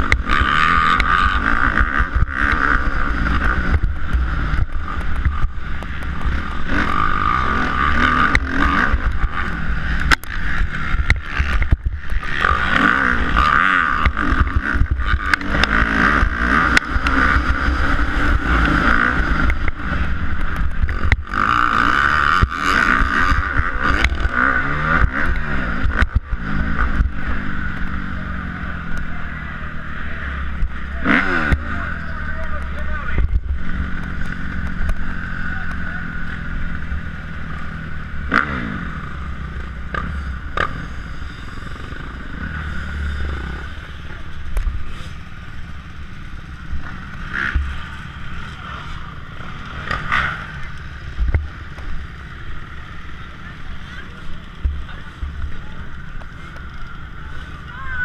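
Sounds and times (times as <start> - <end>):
motorcycle engine revving hard: 0.0 - 58.0.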